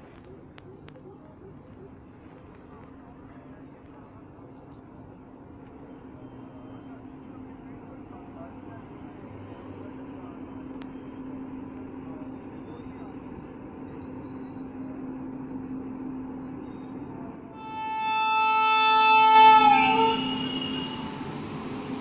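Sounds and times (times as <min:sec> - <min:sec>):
electric locomotive rumbling: 0:01.8 - 0:22.0
locomotive horn blast: 0:17.6 - 0:22.0.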